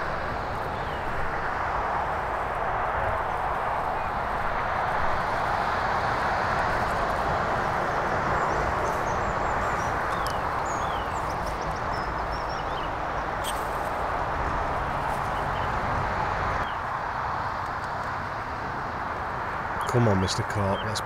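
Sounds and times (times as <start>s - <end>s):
rushing outdoor background noise: 0.0s - 21.0s
high bird chirps: 8.4s - 13.7s.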